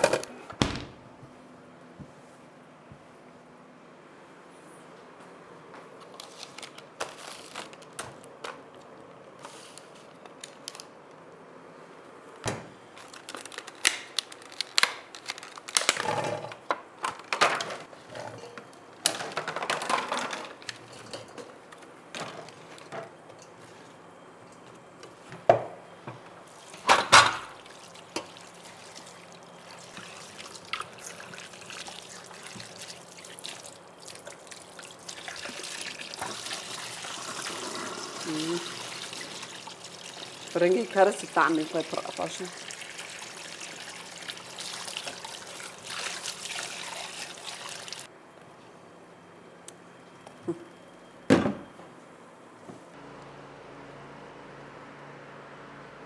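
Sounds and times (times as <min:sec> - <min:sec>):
liquid pouring and splashing: 0:27.6 - 0:40.6, 0:41.6 - 0:48.1.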